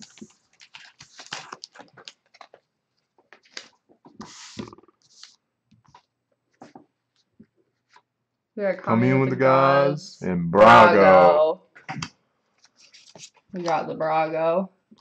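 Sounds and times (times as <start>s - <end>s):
cards clicking and rustling: 0.0s - 6.0s.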